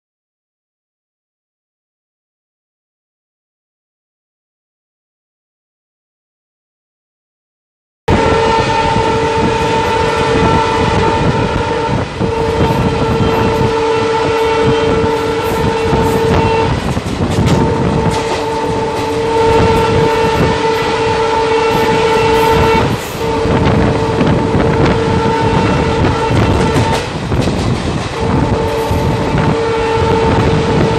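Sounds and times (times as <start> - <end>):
train horn blasts: 8.1 - 30.9
train wheels clattering on rails: 9.0 - 30.9.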